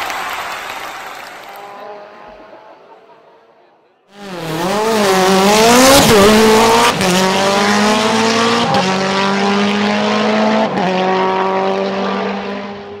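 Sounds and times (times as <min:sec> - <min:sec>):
race car engine accelerating: 0:04.2 - 0:13.0.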